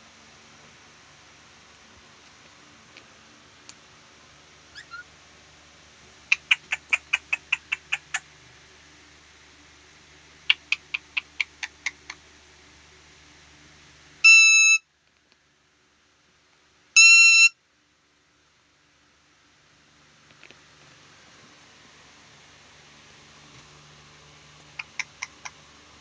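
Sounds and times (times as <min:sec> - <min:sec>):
parakeet screeching calls: 0:04.7 - 0:05.1, 0:06.3 - 0:08.2, 0:14.3 - 0:14.8
flat steady beeps: 0:14.3 - 0:14.8.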